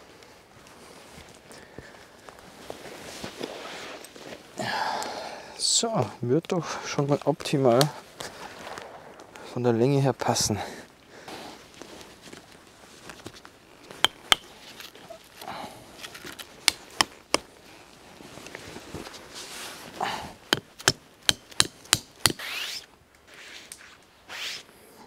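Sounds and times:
hatchet knocking tent pegs: 0:14.0 - 0:14.5, 0:16.6 - 0:17.5, 0:20.5 - 0:22.4.

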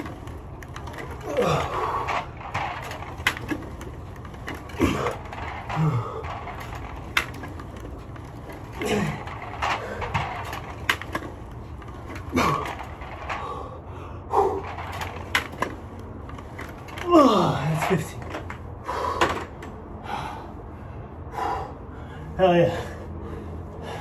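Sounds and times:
sharp clicks and knocks: 0:00.0 - 0:13.6, 0:14.6 - 0:17.1.

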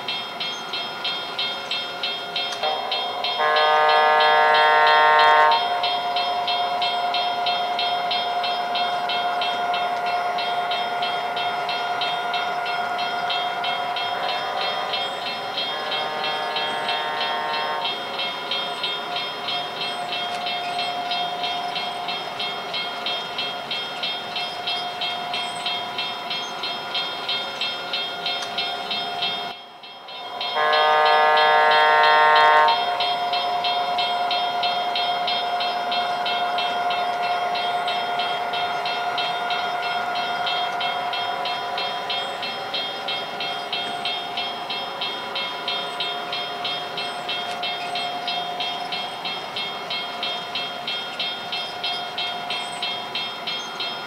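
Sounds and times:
model train running sound: 0:00.0 - 0:54.0
rapid ringing crossing bell: 0:00.0 - 0:54.0
train horn blast: 0:02.6 - 0:05.8, 0:14.2 - 0:15.0, 0:15.6 - 0:18.0, 0:30.4 - 0:33.1.

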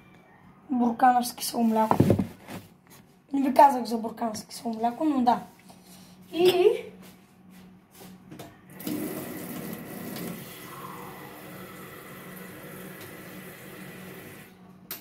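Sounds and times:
kitchen tap running: 0:08.8 - 0:14.5.

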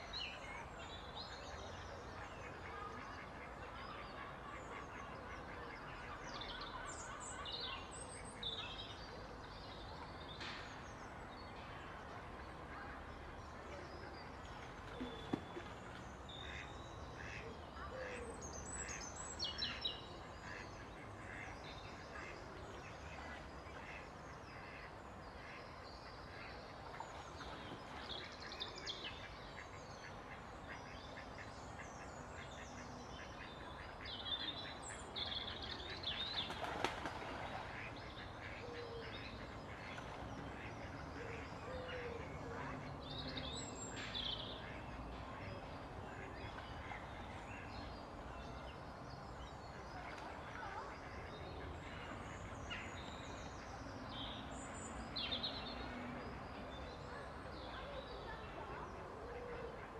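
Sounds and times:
water splashing: 0:36.4 - 0:38.0.

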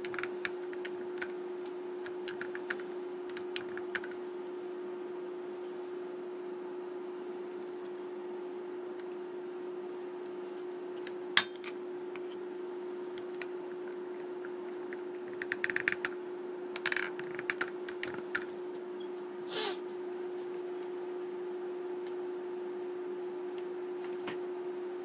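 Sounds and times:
pen plotter hum: 0:13.0 - 0:16.2.

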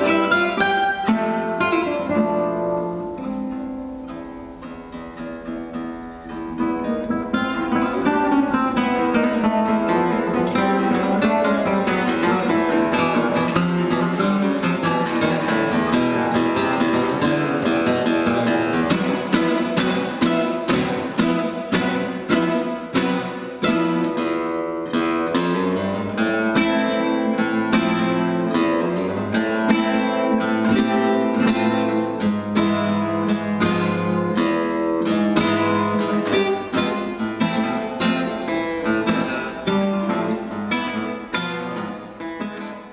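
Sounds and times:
classical guitar duet: 0:00.0 - 0:42.9.

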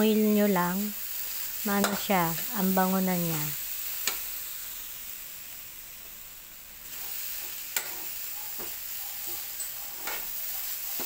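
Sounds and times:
coconut sizzling in a wok: 0:00.0 - 0:11.0
spatula scraping a pan: 0:06.9 - 0:11.0.

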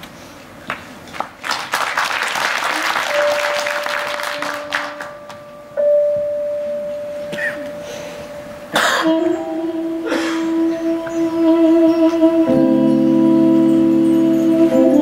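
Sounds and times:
applause: 0:00.7 - 0:05.5
keyboard pad note: 0:03.1 - 0:15.0
organ-like keyboard chord: 0:12.3 - 0:15.0.

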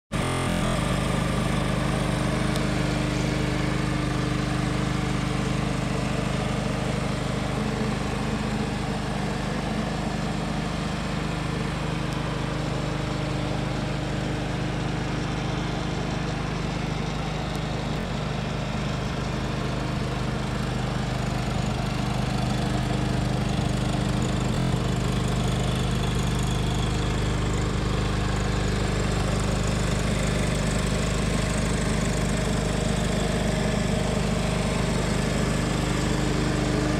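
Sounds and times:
tractor engine idling: 0:00.2 - 0:36.9.

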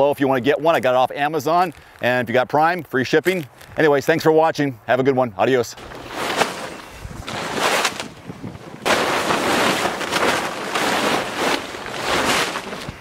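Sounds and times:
plastic tarp crinkling: 0:05.8 - 0:13.0.

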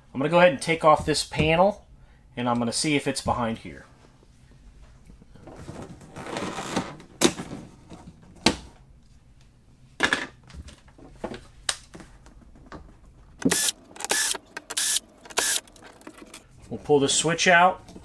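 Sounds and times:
drill-driver handling clicks: 0:13.4 - 0:15.8
drill-driver running: 0:13.4 - 0:15.8.

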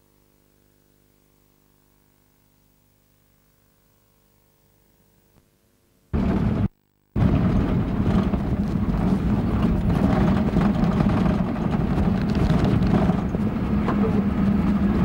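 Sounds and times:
truck engine and tyre drone: 0:06.2 - 0:15.0.

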